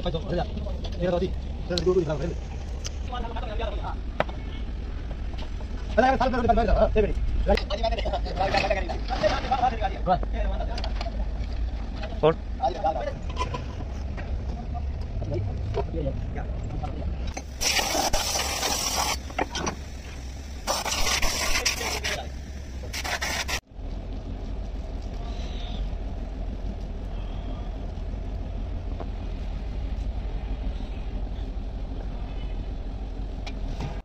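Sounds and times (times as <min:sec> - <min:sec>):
steady low hum: 0:00.0 - 0:34.0
faint workshop noises: 0:08.3 - 0:23.8
hissing spray from sprayer: 0:17.5 - 0:19.2, 0:20.6 - 0:22.1.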